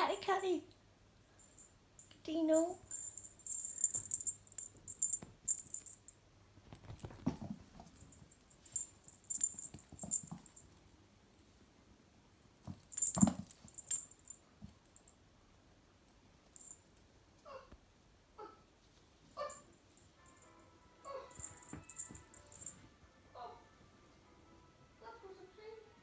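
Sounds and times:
high jingling: 1.4s - 6.2s, 6.8s - 11.5s, 12.4s - 15.2s, 16.5s - 17.1s, 20.2s - 22.8s
soft thumps and rustles: 6.6s - 10.6s.

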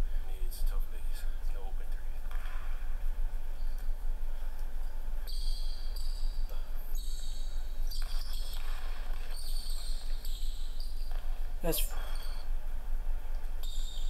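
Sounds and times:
sneaker squeaks: 5.3s - 12.5s, 13.6s - 14.0s.

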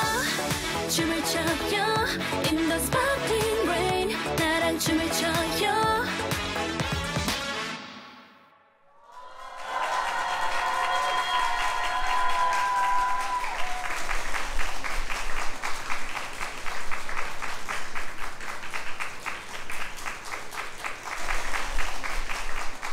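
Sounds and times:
dance-pop song chord: 0.0s - 8.4s
audience applauding: 9.1s - 22.9s.

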